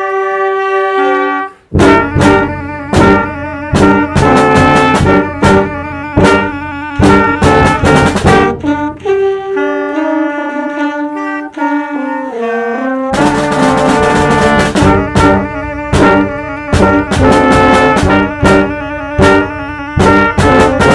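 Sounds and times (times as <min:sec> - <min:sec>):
concert band music: 0:00.0 - 0:20.9
drum hits: 0:01.7 - 0:09.0, 0:13.2 - 0:20.9.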